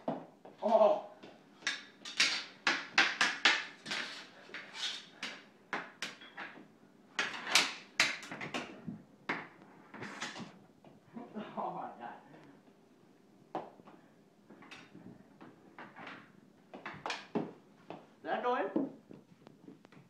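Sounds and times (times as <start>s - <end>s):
hockey sticks clacking on floor: 0.0s - 10.6s, 13.6s - 18.1s.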